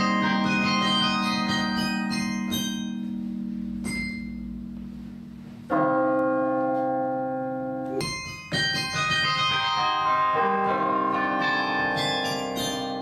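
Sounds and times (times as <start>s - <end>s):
carillon bells ringing: 0.0s - 4.8s, 7.9s - 13.0s.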